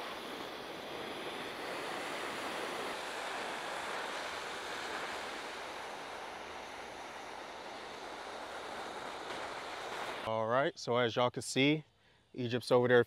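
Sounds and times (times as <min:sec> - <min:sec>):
gas torch hissing: 0:00.0 - 0:10.3.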